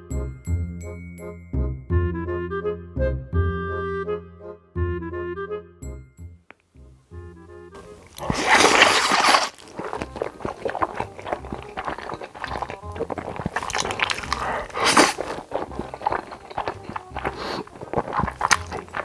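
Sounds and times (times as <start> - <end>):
soft background music: 0.0 - 19.0
noodle slurping and chewing: 7.8 - 19.0
wet mouth clicks: 7.8 - 19.0.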